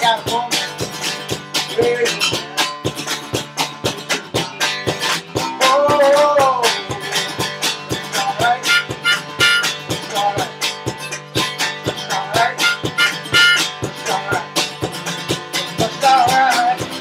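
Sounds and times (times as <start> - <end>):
strummed acoustic guitar: 0.0 - 17.0
harmonica chords: 8.4 - 9.9, 12.4 - 13.8.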